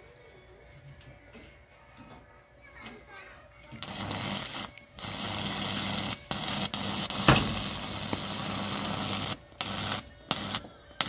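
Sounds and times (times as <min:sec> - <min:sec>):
welding arc crackling hiss: 0:03.8 - 0:11.0
sharp crack: 0:07.1 - 0:08.3.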